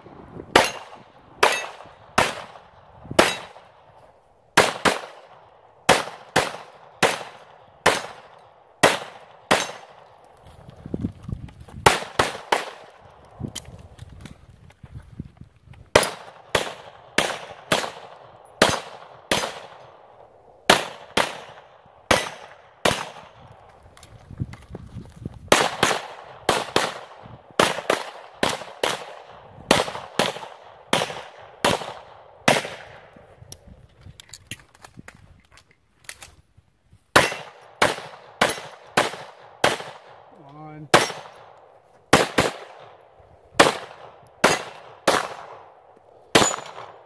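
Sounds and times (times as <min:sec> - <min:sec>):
pistol shots: 0:00.5 - 0:03.9, 0:04.6 - 0:10.3, 0:11.8 - 0:13.6, 0:15.9 - 0:23.6, 0:25.5 - 0:33.1, 0:37.2 - 0:47.0.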